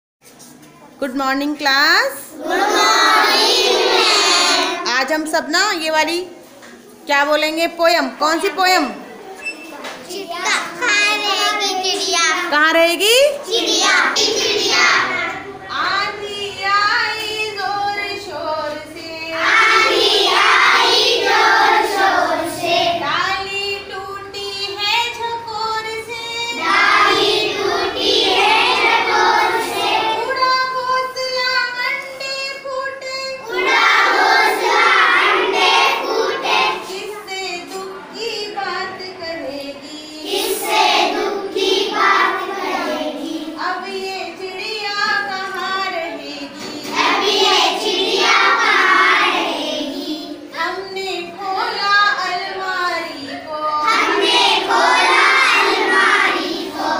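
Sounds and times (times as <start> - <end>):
children singing in chorus: 2.4 - 4.9, 13.5 - 31.8, 33.2 - 56.9.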